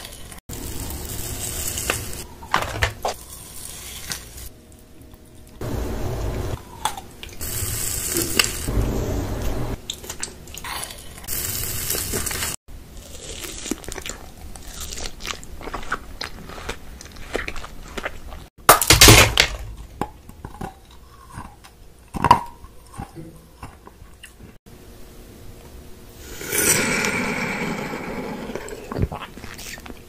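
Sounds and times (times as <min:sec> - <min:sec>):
chewing and crunching: 0:11.9 - 0:18.5, 0:19.9 - 0:24.6, 0:28.8 - 0:30.0.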